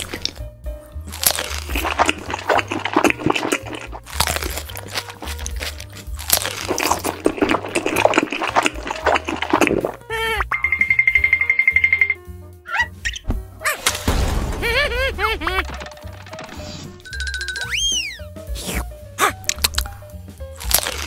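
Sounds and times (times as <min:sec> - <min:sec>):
crunching and chewing: 0:00.0 - 0:10.1, 0:18.6 - 0:21.0
soft background music with bass: 0:00.0 - 0:21.0.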